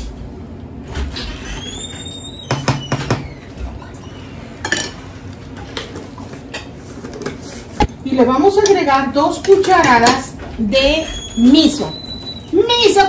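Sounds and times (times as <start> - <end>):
short rising squeak: 1.1 - 4.4, 11.0 - 12.6.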